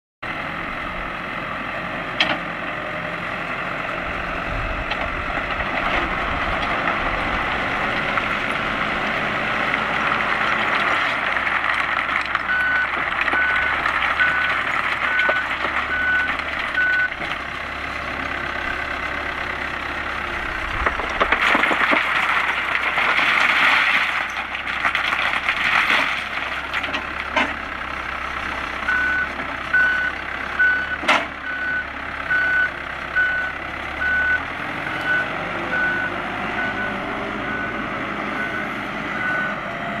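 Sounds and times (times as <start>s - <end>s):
diesel engine running: 0.2s - 40.0s
reversing alarm beeps: 12.5s - 17.2s, 28.9s - 37.8s, 38.4s - 39.6s.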